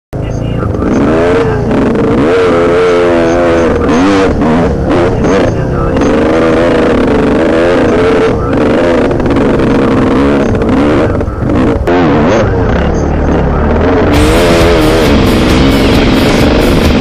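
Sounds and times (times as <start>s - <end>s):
dirt bike engine revving: 0.2s - 17.0s.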